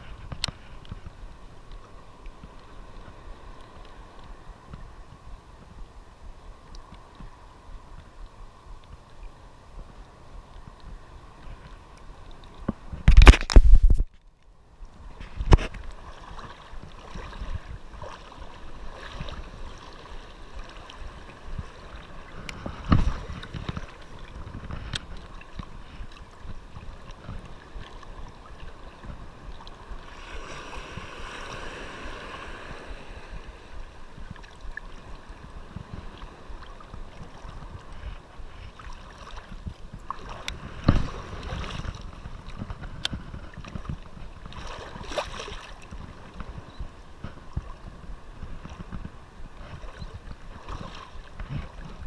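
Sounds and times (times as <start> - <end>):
shallow surf sloshing: 0.0 - 14.0, 14.8 - 52.0
clicks and handling noise: 12.4 - 14.5.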